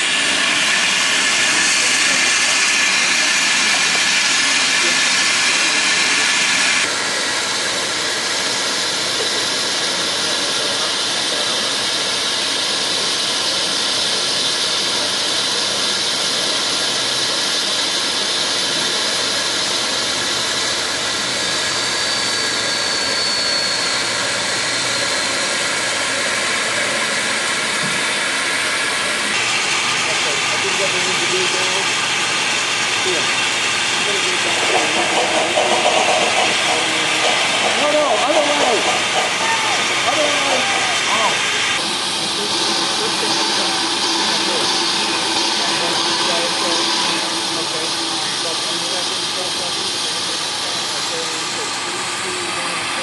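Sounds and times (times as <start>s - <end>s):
steam locomotive venting steam: 0.0s - 53.0s
faint high squeal: 21.3s - 27.2s.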